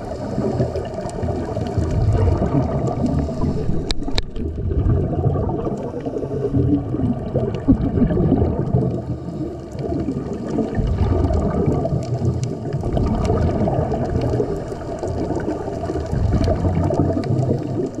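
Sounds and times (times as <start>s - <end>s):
low churning rumble: 0.0s - 18.0s
underwater bubbles gurgling: 0.0s - 18.0s
faint clicks: 0.2s - 4.5s, 11.2s - 18.0s.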